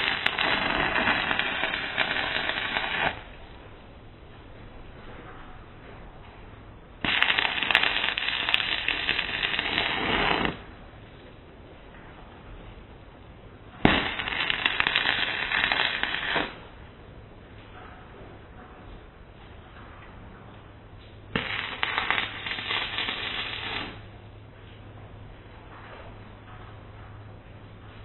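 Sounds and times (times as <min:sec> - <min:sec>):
welding arc crackling: 0:00.0 - 0:03.6, 0:07.0 - 0:10.9, 0:13.8 - 0:16.7, 0:21.3 - 0:24.2.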